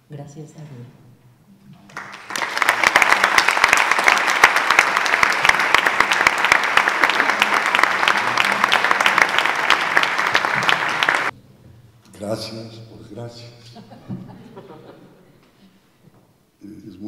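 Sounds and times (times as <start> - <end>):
audience applause: 1.9 - 11.3.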